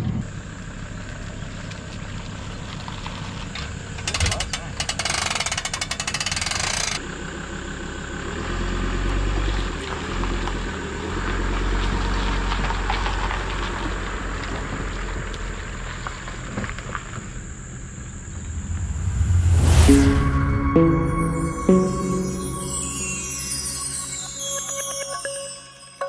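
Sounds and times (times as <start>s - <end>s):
hand winch ratcheting: 4.0s - 7.0s
vehicle engine running low: 7.0s - 20.2s.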